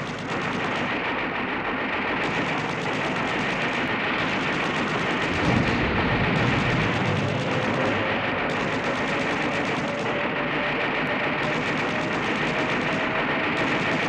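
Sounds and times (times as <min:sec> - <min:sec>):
anti-aircraft guns firing: 0:00.0 - 0:14.0
heavy low burst: 0:05.0 - 0:09.6.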